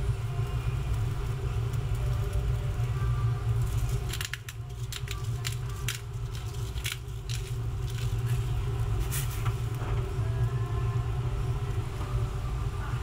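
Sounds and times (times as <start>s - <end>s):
pepper mill grinding: 3.6s - 8.6s.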